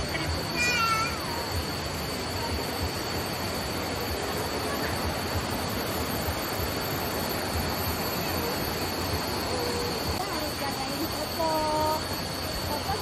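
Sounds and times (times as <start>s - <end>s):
high-pitched whine: 0.0s - 13.0s.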